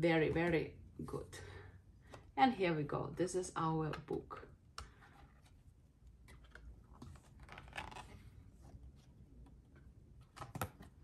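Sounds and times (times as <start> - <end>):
cardboard book pages turning: 4.9 - 11.0.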